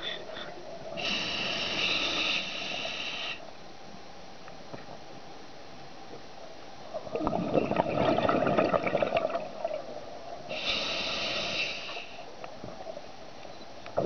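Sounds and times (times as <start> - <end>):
regulator hissing on inhale: 0.0 - 3.5, 10.5 - 12.3
exhaled bubbles crackling underwater: 6.9 - 12.1.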